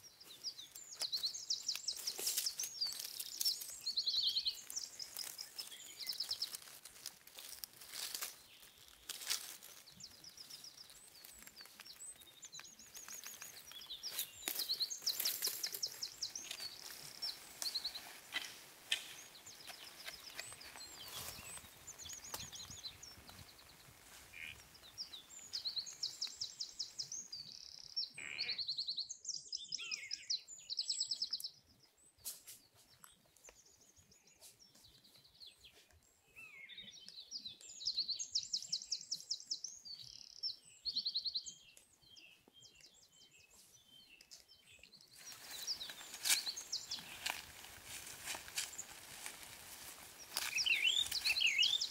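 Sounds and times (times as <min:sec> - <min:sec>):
dry leaves rustling: 0:00.3 - 0:26.3, 0:45.2 - 0:51.9
songbird trilling: 0:50.2 - 0:51.9.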